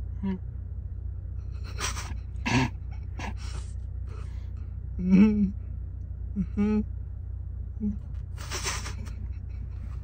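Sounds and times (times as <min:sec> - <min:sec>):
low hum inside car: 0:00.0 - 0:10.0
stifled laughter snorts: 0:01.5 - 0:04.4, 0:08.4 - 0:10.0.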